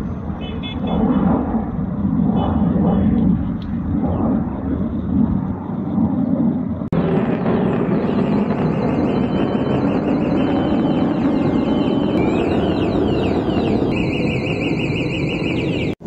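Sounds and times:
jet aircraft roaring overhead: 0:00.0 - 0:16.0
high warbling chirps: 0:03.9 - 0:16.0.

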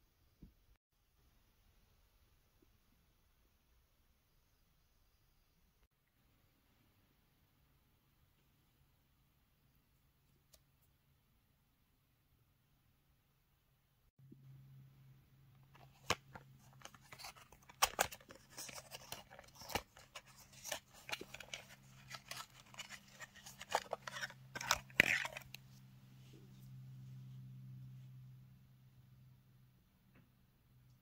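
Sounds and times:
cardboard box crinkling and rustling: 0:15.8 - 0:25.6.

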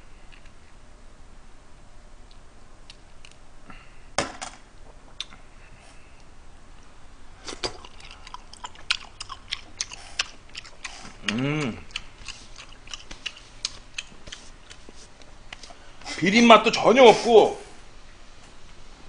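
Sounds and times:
person chewing: 0:05.1 - 0:06.3, 0:07.4 - 0:16.2.

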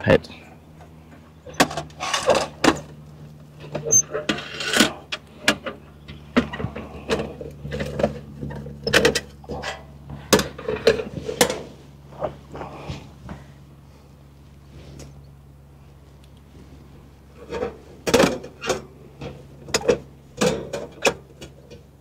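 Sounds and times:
metal clicks and clanks: 0:03.6 - 0:11.6, 0:17.4 - 0:21.9.

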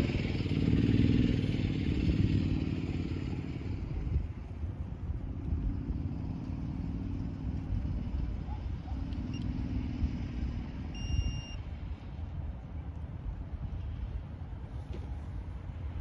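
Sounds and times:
car passing: 0:00.0 - 0:16.0
wind buffeting microphone: 0:00.0 - 0:16.0
short high electronic beep: 0:11.0 - 0:11.6.

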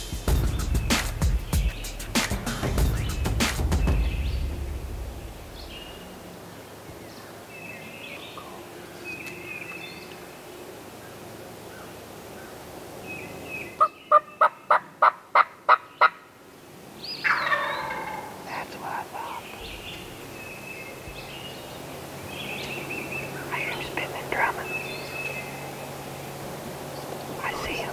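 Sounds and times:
songbirds chirping: 0:00.0 - 0:27.9
turkey gobbling: 0:13.8 - 0:16.2, 0:17.2 - 0:18.5
turkey yelps: 0:13.8 - 0:16.2, 0:17.2 - 0:18.4.

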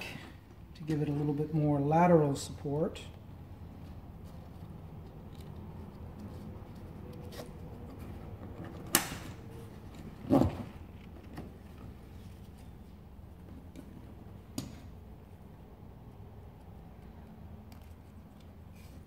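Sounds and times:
strap rubbing: 0:03.6 - 0:15.1.

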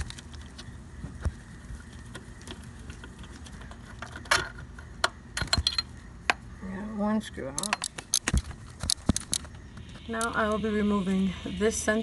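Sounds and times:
metal tool clicks and clinks: 0:05.4 - 0:05.9, 0:07.5 - 0:09.4.

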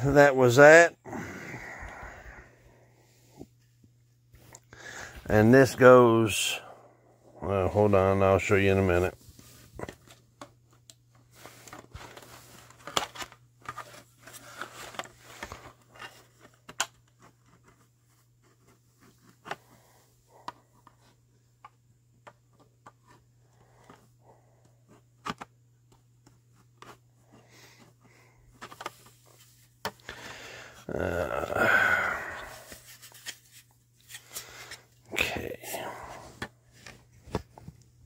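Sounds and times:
faint steady hum: 0:00.0 - 0:38.0
hands handling small parts: 0:31.4 - 0:35.6.

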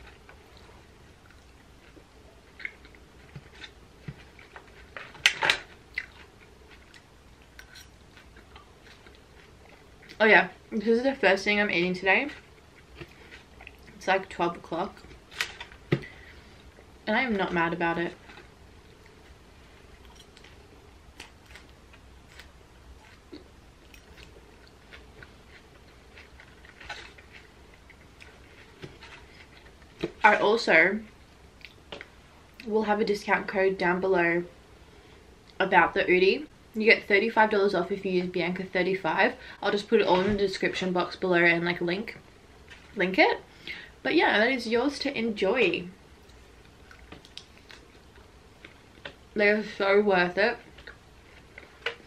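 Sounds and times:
person chewing salad: 0:00.0 - 0:10.2, 0:12.3 - 0:14.0, 0:18.1 - 0:30.2, 0:31.4 - 0:32.6, 0:46.1 - 0:49.3, 0:50.6 - 0:52.0.

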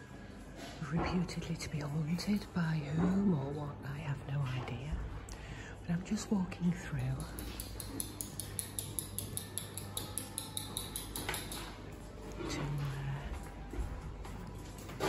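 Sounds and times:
light ticking and clinks: 0:07.0 - 0:11.8.

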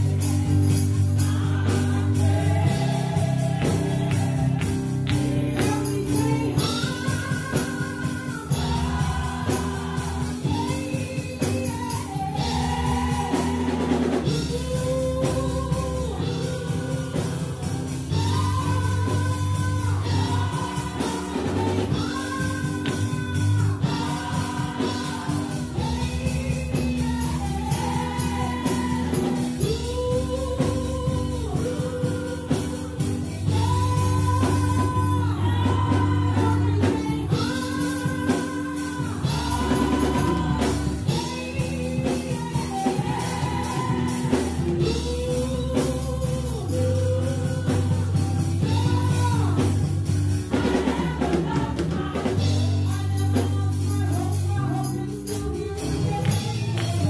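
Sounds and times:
choir singing in harmony: 0:00.0 - 0:14.6, 0:16.2 - 0:33.2, 0:34.3 - 0:46.0, 0:50.3 - 0:52.7
live band with drums: 0:00.0 - 0:57.0.

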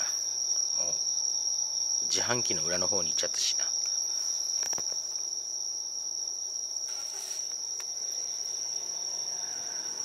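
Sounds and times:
insects trilling: 0:00.0 - 0:10.0
short hiss: 0:06.9 - 0:07.5.

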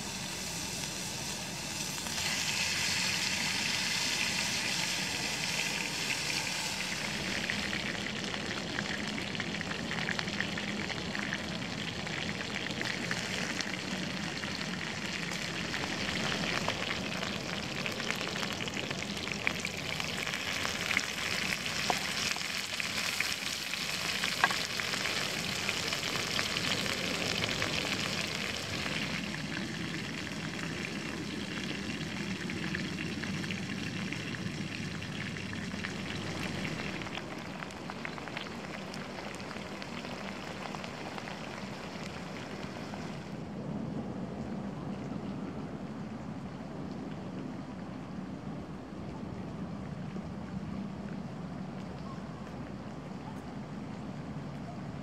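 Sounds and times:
food sizzling in oil: 0:00.0 - 0:11.8, 0:12.4 - 0:43.0
oil popping: 0:00.0 - 0:31.6.

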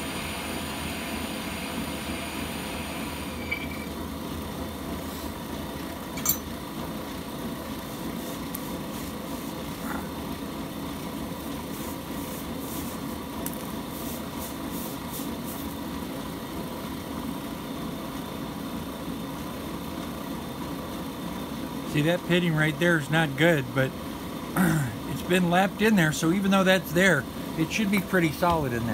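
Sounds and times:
brake lathe humming: 0:00.0 - 0:28.9.

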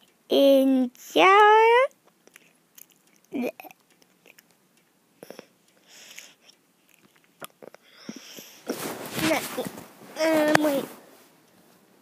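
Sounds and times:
faint mouth clicks: 0:02.2 - 0:04.6
breathy hiss: 0:05.2 - 0:06.5, 0:07.6 - 0:08.8.

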